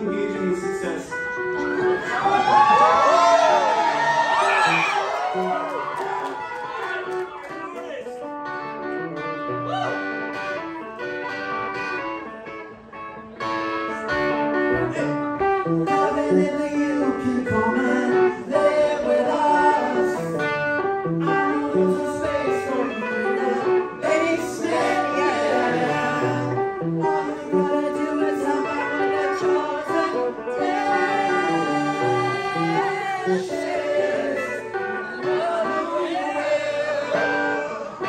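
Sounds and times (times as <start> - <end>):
electric-acoustic guitar picking: 0.0 - 2.5, 6.4 - 38.0
man singing: 14.7 - 38.0.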